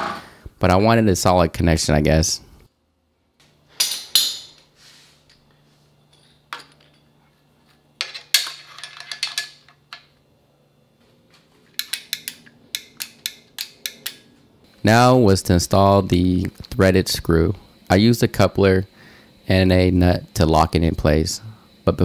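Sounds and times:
steel parts knocking and clinking: 3.8 - 4.6, 6.1 - 7.1, 8.0 - 10.1.

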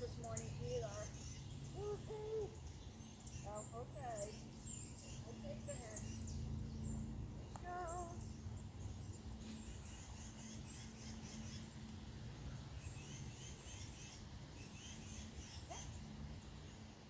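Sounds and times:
songbirds singing: 0.0 - 17.0.

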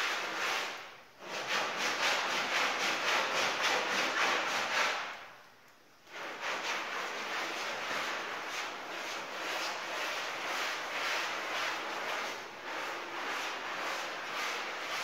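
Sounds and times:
brush scrubbing wet rug: 0.0 - 5.4, 6.1 - 15.0.

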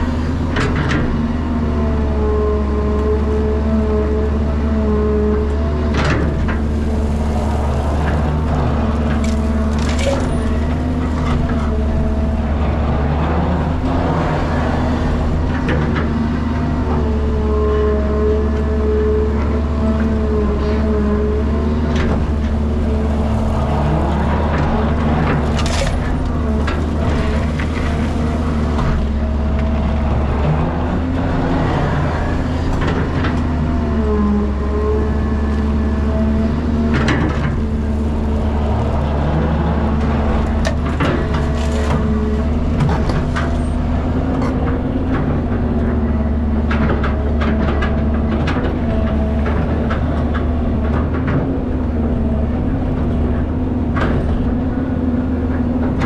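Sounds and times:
excavator diesel engine and hydraulics: 0.0 - 56.0
knocks and clanks: 39.8 - 56.0.

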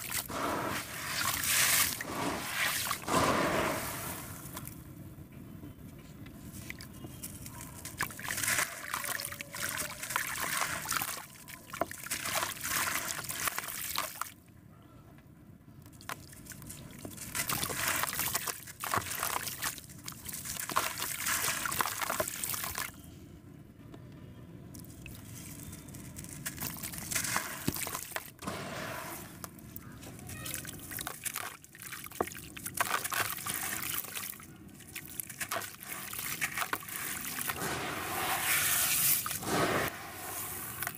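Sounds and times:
crumbs splashing into water: 7.8 - 14.3, 16.0 - 22.9, 25.0 - 28.4, 30.5 - 37.8.

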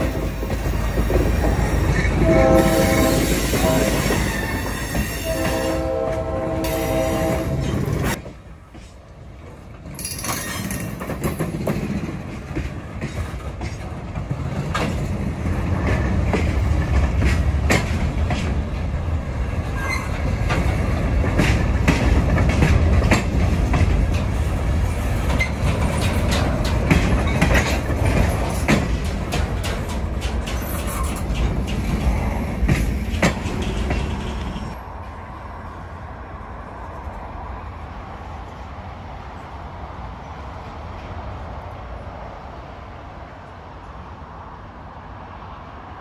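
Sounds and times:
train clicks and clanks: 0.0 - 35.8
freight train wheels rumbling: 0.0 - 46.0.

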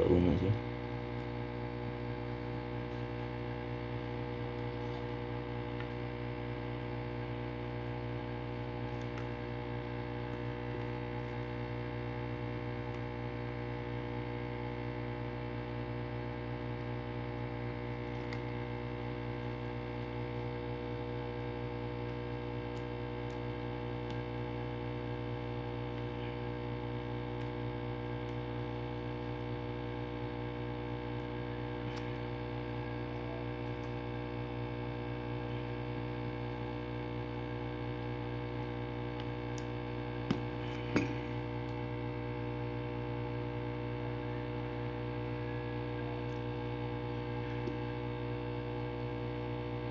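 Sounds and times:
electrical hum: 0.0 - 49.9.

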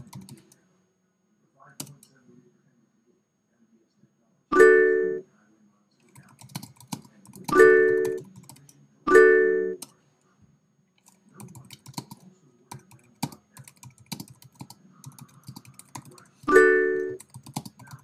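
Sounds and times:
typing on computer keyboard: 0.0 - 0.6, 6.1 - 8.7, 11.0 - 18.0.

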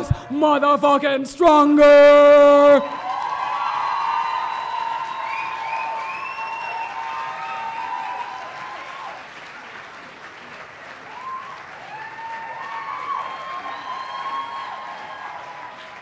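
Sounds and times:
whoops and cheering shouts: 2.8 - 9.2, 11.1 - 16.0
audience applauding: 2.9 - 16.0.

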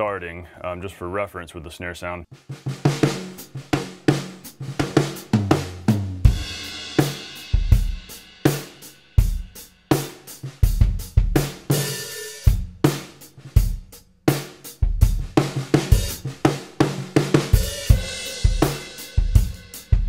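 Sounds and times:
snare drum: 2.3 - 8.8, 15.2 - 19.9
bass drum hits: 2.4 - 8.0.

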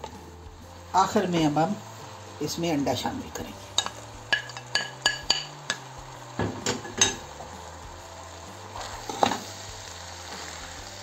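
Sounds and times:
utensil clinking against dishes: 3.8 - 5.5, 6.6 - 7.2.

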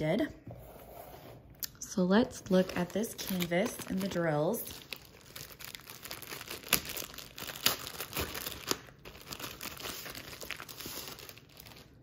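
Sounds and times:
plastic sleeve crinkling: 2.4 - 12.0.

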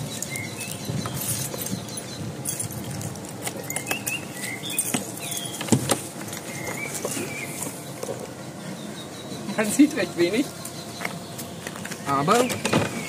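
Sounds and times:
keys rattling: 0.0 - 6.8
birds chirping: 0.0 - 13.0.

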